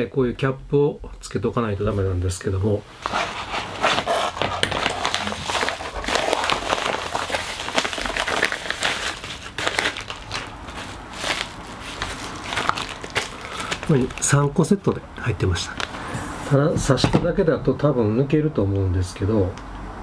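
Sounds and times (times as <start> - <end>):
plastic bag crinkling: 3.0 - 16.1.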